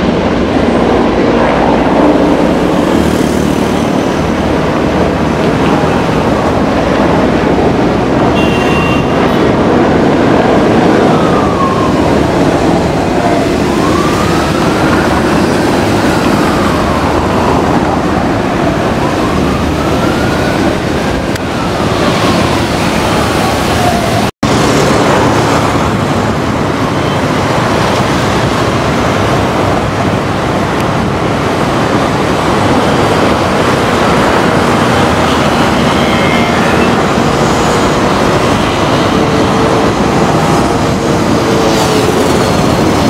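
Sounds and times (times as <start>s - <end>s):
siren wailing: 8.4s - 24.3s, 32.1s - 43.0s.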